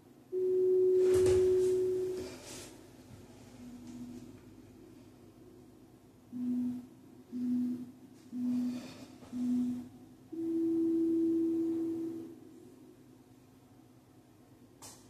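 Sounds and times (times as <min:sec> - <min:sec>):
timer long high beep: 0:06.4 - 0:07.8, 0:08.4 - 0:12.3
timer short low beeps: 0:06.4 - 0:12.3.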